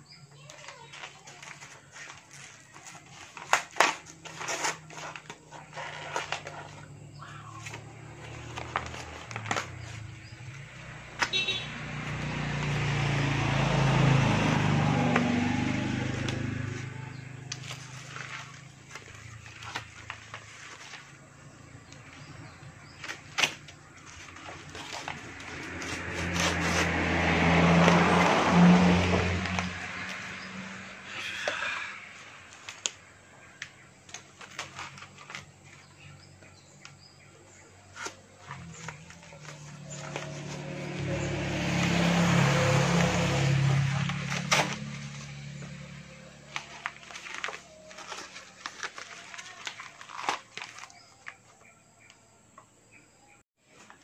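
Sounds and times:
paper envelope being torn: 0:00.4 - 0:06.9, 0:07.6 - 0:11.3, 0:15.1 - 0:22.3, 0:22.9 - 0:30.3, 0:32.4 - 0:35.8, 0:37.9 - 0:51.5
paper rustling and snapping: 0:00.4 - 0:12.8, 0:14.4 - 0:30.4, 0:32.4 - 0:36.2, 0:37.7 - 0:52.2.

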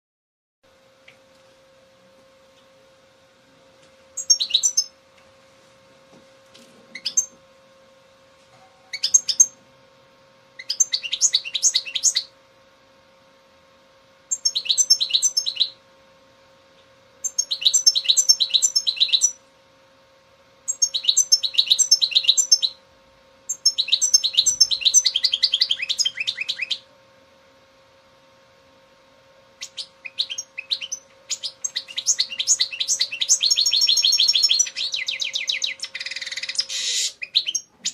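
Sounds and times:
faint steady hum: 0:00.6 - 0:37.9
goldfinch twittering and trills: 0:04.2 - 0:04.9, 0:14.3 - 0:15.7, 0:20.7 - 0:22.8, 0:23.5 - 0:26.8, 0:29.6 - 0:37.9.

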